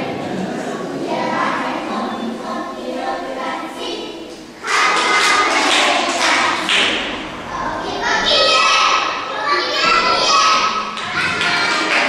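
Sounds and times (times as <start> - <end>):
children singing in choir: 0.0 - 12.0
sudden burst of noise: 6.0 - 10.3.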